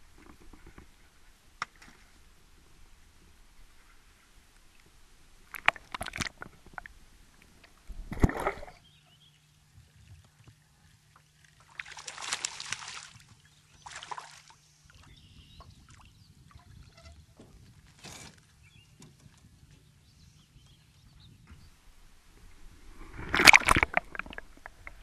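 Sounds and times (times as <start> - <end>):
fish splashing at surface: 11.8 - 13.2, 23.1 - 24.8.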